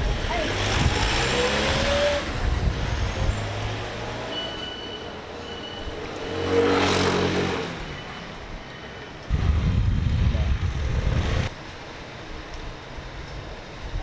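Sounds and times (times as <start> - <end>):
vehicle passing close: 5.9 - 7.9.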